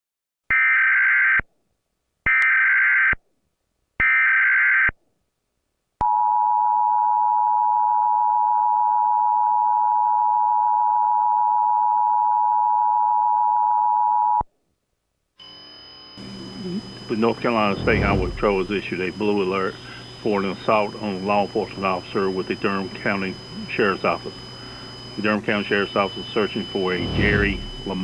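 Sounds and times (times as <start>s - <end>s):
data burst tones: 15.4s - 19.2s, 19.9s - 28.0s
two-tone alert signal: 17.6s - 18.8s, 26.6s - 28.0s.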